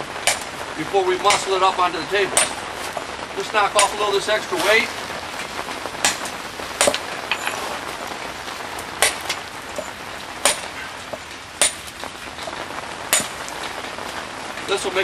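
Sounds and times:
light rain hissing: 0.0 - 15.0
hammer striking stone: 0.2 - 0.5, 9.0 - 11.8, 13.1 - 13.4.

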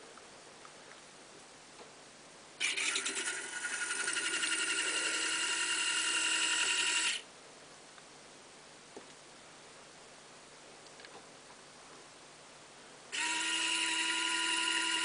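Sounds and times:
small gear motor whining: 2.6 - 7.2, 13.1 - 15.0.

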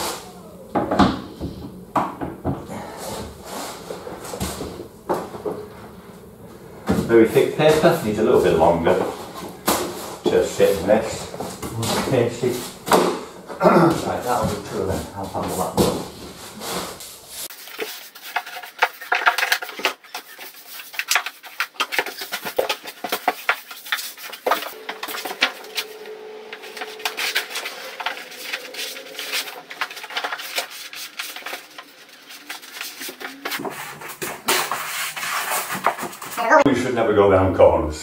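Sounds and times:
wallpaper crackling and rustling: 0.0 - 36.7.

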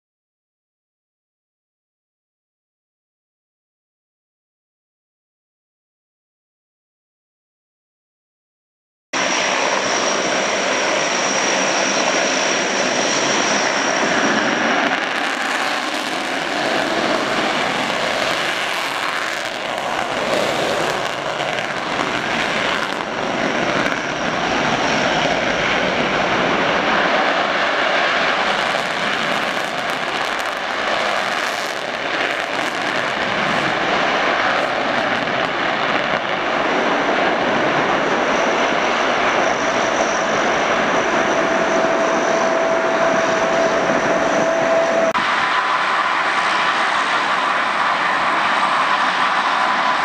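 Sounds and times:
jet engines running: 9.2 - 50.0
thin high whine: 37.8 - 50.0.

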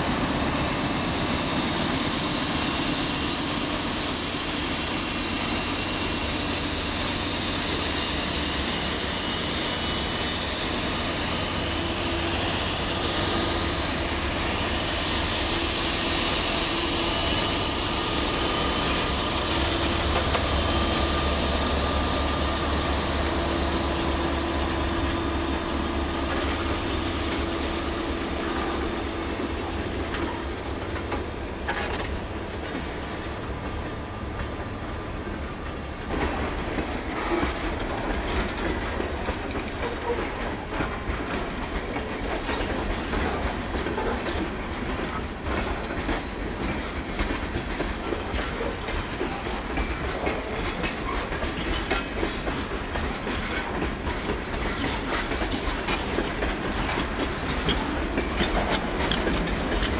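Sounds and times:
locomotive engines droning: 0.0 - 36.8.

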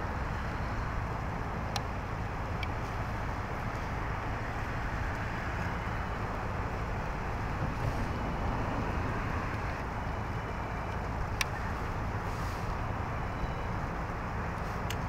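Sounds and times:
distant traffic rumble: 0.0 - 15.0
constant hiss: 11.0 - 15.0.

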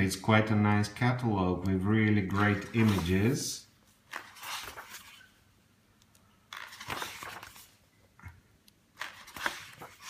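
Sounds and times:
paper pages rustling: 2.0 - 5.4, 6.5 - 7.8, 8.9 - 10.0.

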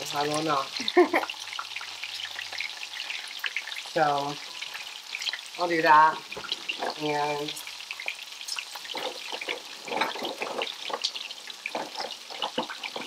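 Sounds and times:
shrimp sizzling in a frying pan: 0.0 - 13.0
spitting oil crackles and pops: 6.2 - 13.0.

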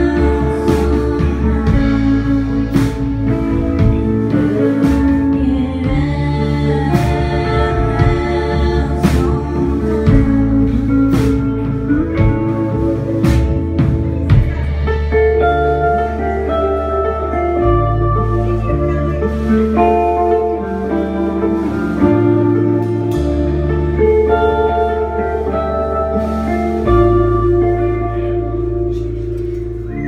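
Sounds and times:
steady drum beat: 0.0 - 15.9
bass guitar: 0.0 - 30.0
electric guitars: 0.0 - 30.0.

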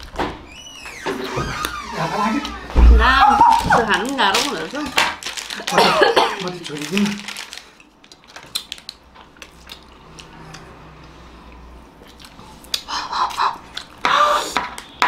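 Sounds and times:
person speaking: 5.6 - 7.3
mouth eating sounds: 12.0 - 14.6.

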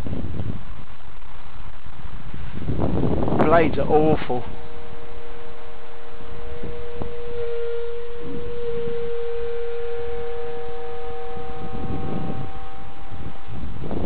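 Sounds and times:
model aircraft motor humming: 0.0 - 14.0
wind rumble on microphone: 0.0 - 14.0.

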